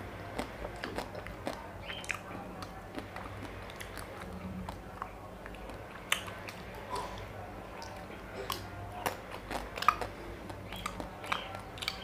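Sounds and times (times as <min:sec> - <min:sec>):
wet chewing and smacking: 0:00.3 - 0:12.0.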